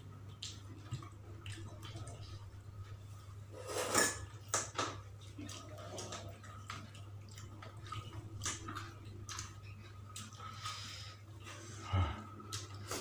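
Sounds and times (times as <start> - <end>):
low steady hum: 0.0 - 13.0
mouth smacking and chewing: 0.2 - 2.5, 5.2 - 10.7.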